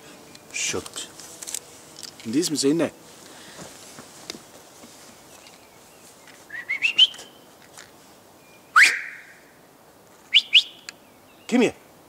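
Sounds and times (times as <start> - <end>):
loud upward-sliding whistle: 6.5 - 7.2, 8.7 - 9.4, 10.3 - 10.7
short rising whistles: 6.5 - 7.3, 8.6 - 9.4, 10.3 - 10.8.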